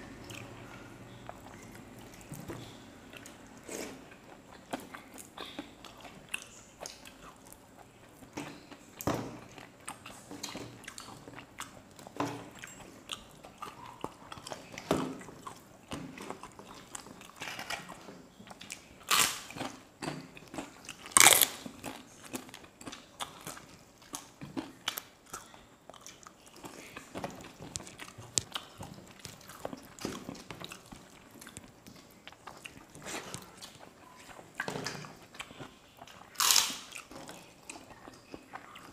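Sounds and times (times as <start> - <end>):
people chewing food: 0.0 - 38.9
crisp cracker crunching: 20.6 - 23.6, 35.4 - 37.9.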